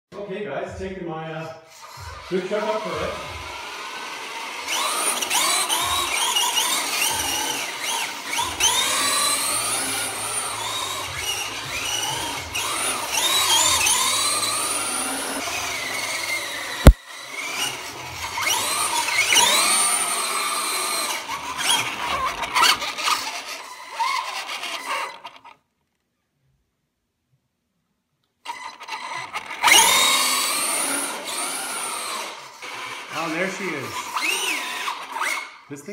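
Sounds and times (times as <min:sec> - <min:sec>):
electric motor whining: 0:01.7 - 0:25.6, 0:28.4 - 0:35.8
tyres squealing: 0:28.5 - 0:35.8.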